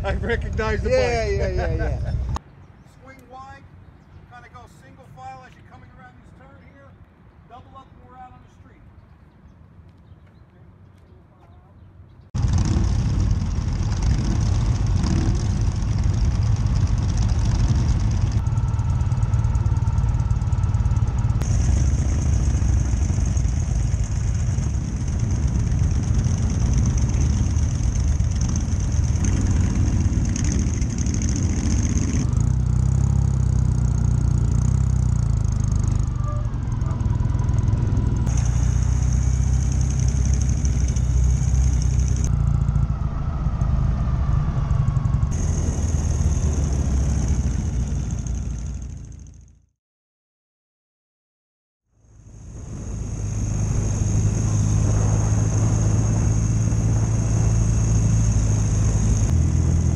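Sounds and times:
motorcycle engine running: 0:12.4 - 0:49.7, 0:52.0 - 0:59.9
wind rushing: 0:52.4 - 0:59.3.

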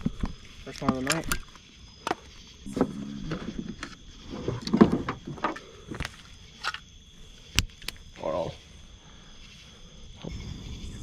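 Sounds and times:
clicks and knocks of handling: 0:00.0 - 0:02.2
night insects droning: 0:00.0 - 0:11.0.

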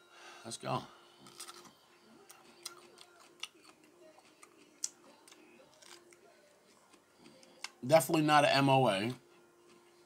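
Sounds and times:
pepper being bitten and chewed: 0:01.2 - 0:07.8.

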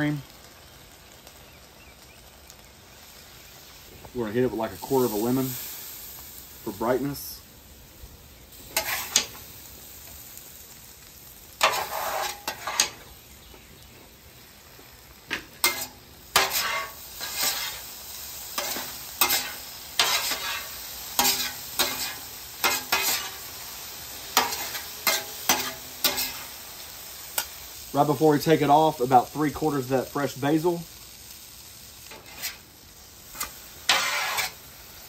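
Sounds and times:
food sizzling on griddle: 0:00.0 - 0:35.0
metal spatulas scraping steel: 0:08.8 - 0:09.3, 0:11.6 - 0:13.0, 0:15.6 - 0:17.8, 0:18.6 - 0:23.4, 0:24.4 - 0:26.4, 0:32.1 - 0:32.6, 0:33.4 - 0:34.6.

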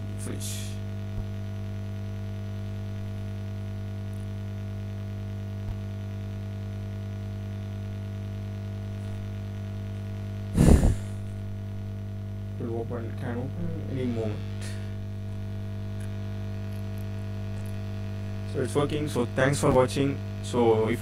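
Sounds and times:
electrical hum: 0:00.0 - 0:21.0
loud burst of noise: 0:10.6 - 0:11.4.

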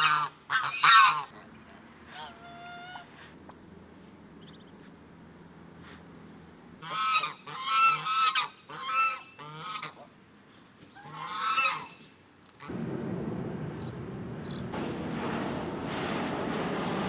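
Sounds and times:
geese honking: 0:00.0 - 0:03.3, 0:06.8 - 0:10.2, 0:10.9 - 0:12.7
steady rushing noise: 0:12.7 - 0:17.0.

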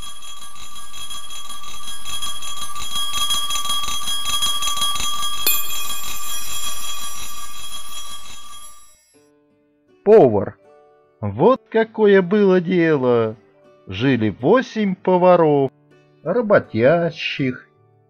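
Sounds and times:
small bell ringing fast: 0:00.0 - 0:09.2.

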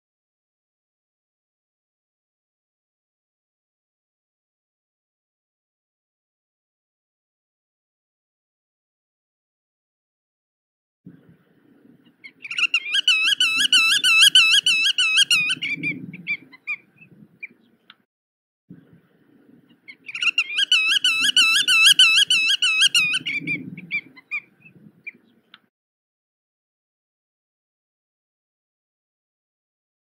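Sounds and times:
bird calling fast repeated notes: 0:12.2 - 0:16.8, 0:19.9 - 0:25.2.

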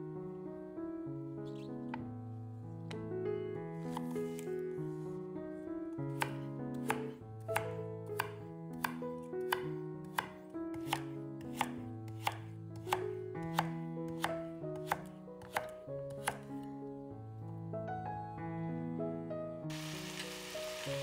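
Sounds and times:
soft background music: 0:00.0 - 0:21.0
knife chopping food: 0:03.9 - 0:04.4, 0:06.2 - 0:16.5.

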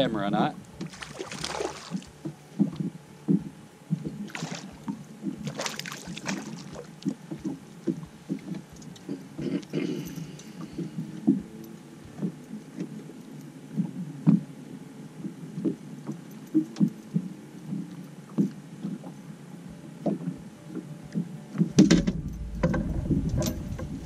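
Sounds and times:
waves slapping boat hull: 0:00.8 - 0:08.7
low rumble: 0:21.8 - 0:24.0.

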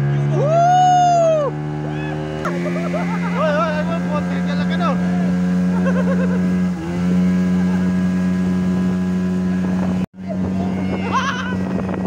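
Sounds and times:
outboard motor running: 0:00.0 - 0:12.0
wind on microphone: 0:08.5 - 0:12.0.

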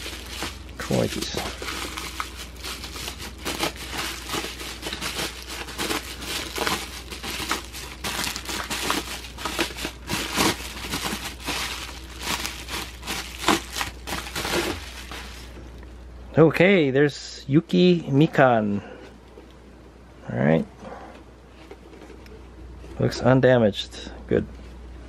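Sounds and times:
bubble wrap crinkling: 0:00.0 - 0:15.6.

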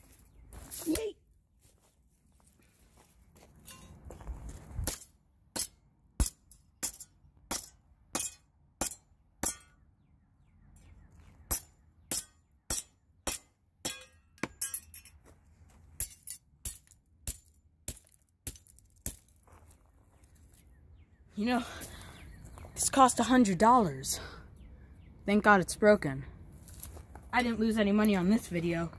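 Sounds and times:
hammer clinking on metal: 0:03.6 - 0:04.0, 0:11.5 - 0:15.2, 0:16.0 - 0:18.6.

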